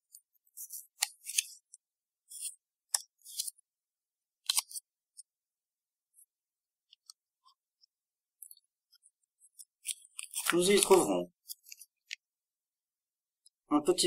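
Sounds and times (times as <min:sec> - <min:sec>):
paper leaflet rustling: 0:00.0 - 0:03.6, 0:08.4 - 0:12.2
paper snapping: 0:09.8 - 0:11.1.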